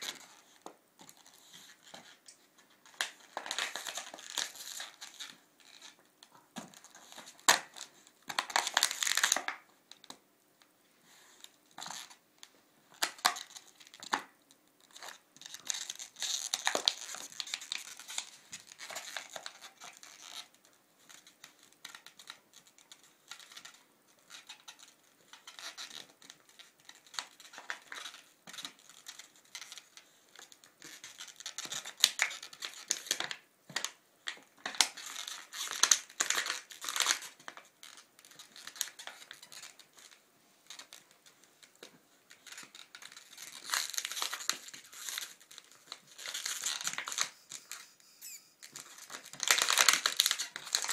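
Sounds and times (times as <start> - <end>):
dog chewing crinkly plush toy: 0.0 - 2.2, 2.9 - 9.6, 14.9 - 47.9, 48.7 - 50.9.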